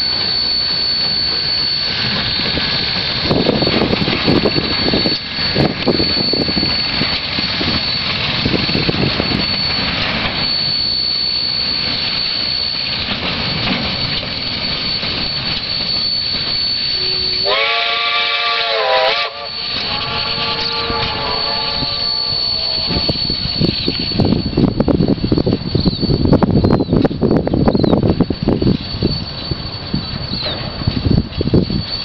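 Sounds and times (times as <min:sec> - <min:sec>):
steam whistle chord: 0:00.0 - 0:08.0, 0:15.8 - 0:24.4
steam locomotive exhaust: 0:00.0 - 0:32.0
faint second whistle: 0:29.0 - 0:32.0.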